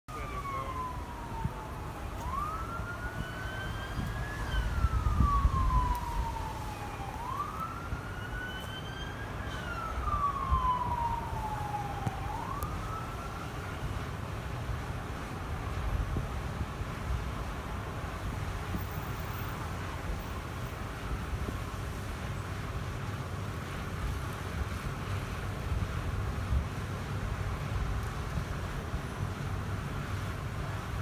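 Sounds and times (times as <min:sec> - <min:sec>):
police siren wailing: 0:00.1 - 0:15.8
low rumble of traffic: 0:00.1 - 0:31.0.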